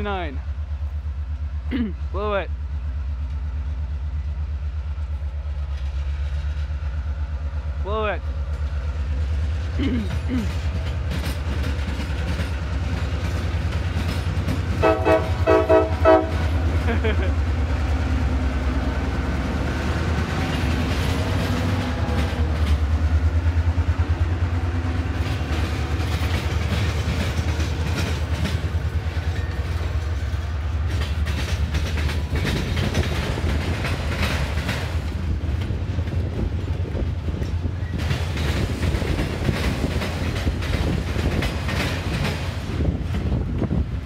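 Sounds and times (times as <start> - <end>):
diesel locomotive engine hum: 0.0 - 44.0.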